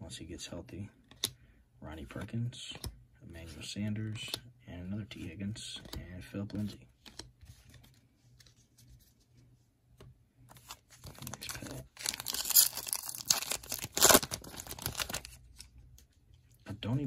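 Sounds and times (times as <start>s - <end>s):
foil wrapper crinkling: 10.6s - 15.7s
foil wrapper ripping: 11.2s - 15.3s.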